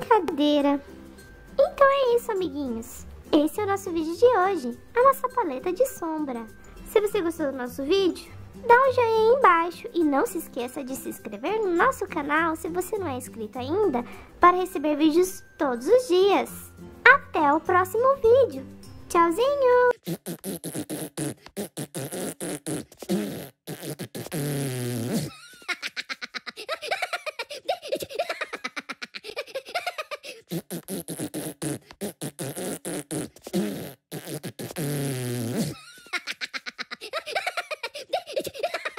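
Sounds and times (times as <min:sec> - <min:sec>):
cartoon voice laughing: 0:25.2 - 0:30.6, 0:35.6 - 0:38.9.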